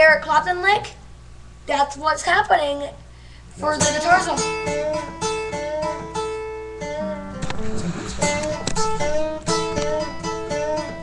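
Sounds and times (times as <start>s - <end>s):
acoustic guitar riff: 3.6s - 11.0s.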